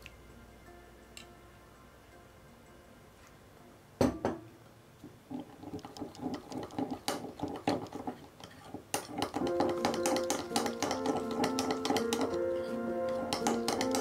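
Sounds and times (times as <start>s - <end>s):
metal spoon clinking glass bowl: 9.0s - 14.0s.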